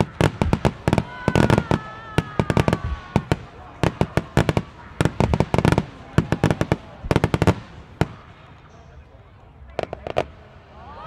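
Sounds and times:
falling firework whistle: 0.0 - 3.4
firework bangs: 0.0 - 9.0, 9.7 - 10.6.

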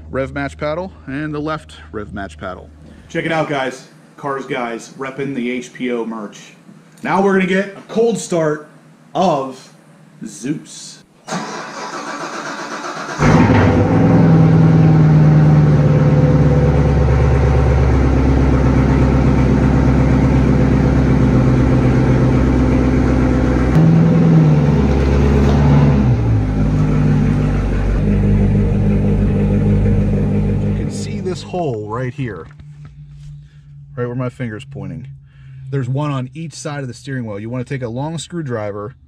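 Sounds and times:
car engine cold start and idling: 11.3 - 38.0.

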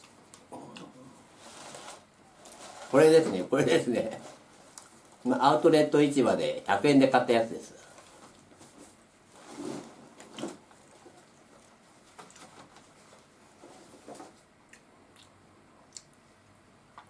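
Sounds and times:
rummaging in straw basket: 1.3 - 5.9.

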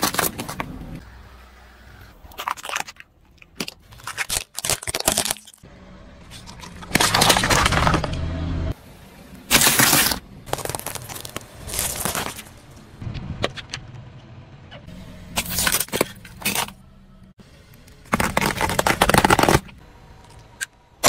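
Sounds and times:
tyre crunching small objects: 0.0 - 1.0, 2.2 - 8.3, 9.5 - 12.9, 15.4 - 16.8, 18.0 - 20.7.

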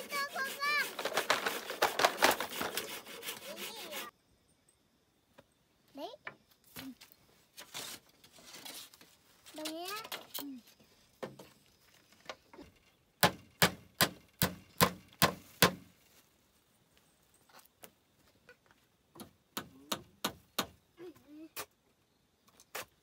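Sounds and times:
hammer hitting nails: 13.2 - 15.8.

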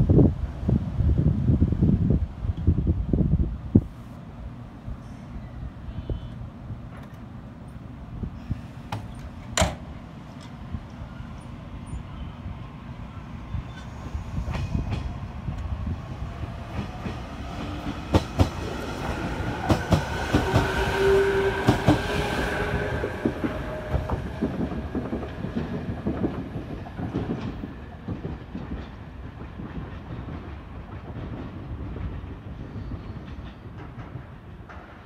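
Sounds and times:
train wheels clicking over rail joints: 16.6 - 20.8, 23.2 - 35.0.

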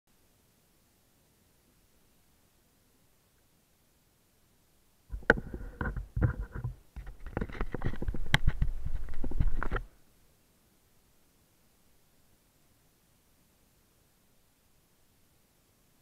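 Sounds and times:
muffled knocking and rubbing: 5.1 - 9.9.

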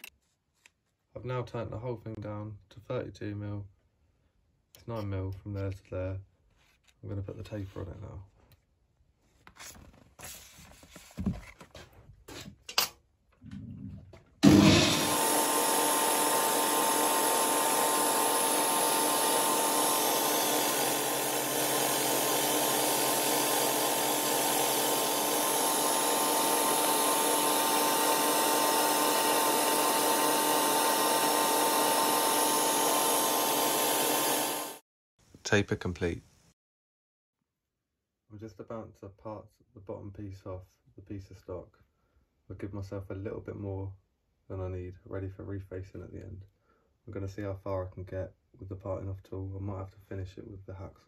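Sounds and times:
metal lathe running with whine: 14.4 - 34.8.

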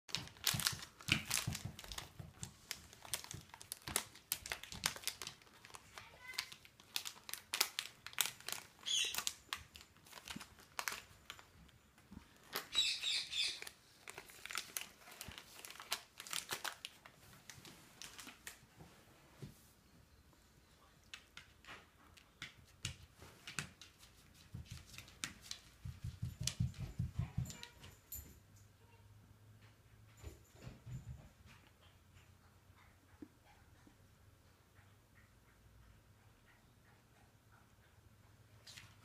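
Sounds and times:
wrapper crinkling and tearing: 0.1 - 11.5, 12.4 - 18.6.

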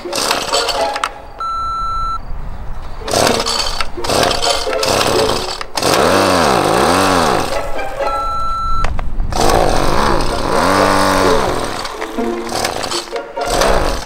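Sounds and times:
recoil pull-starter rattle: 0.0 - 1.1, 3.0 - 7.6, 9.3 - 14.0
short steady beep: 1.4 - 2.3, 8.1 - 8.9
two-stroke engine running: 3.0 - 7.7, 9.3 - 14.0.

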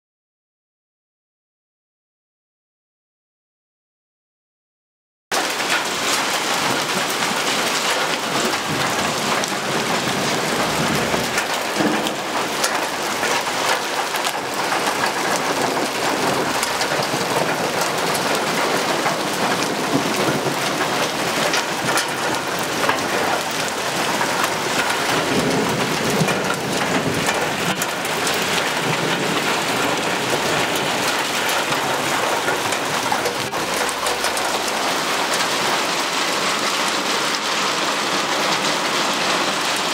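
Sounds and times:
hailstones ticking on pavement: 5.3 - 39.9
hail hissing down: 5.4 - 39.9.

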